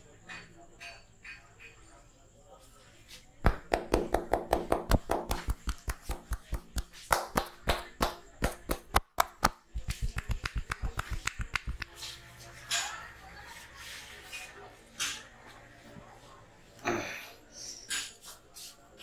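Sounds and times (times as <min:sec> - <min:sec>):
hands slapping on a head: 0:03.4 - 0:12.0.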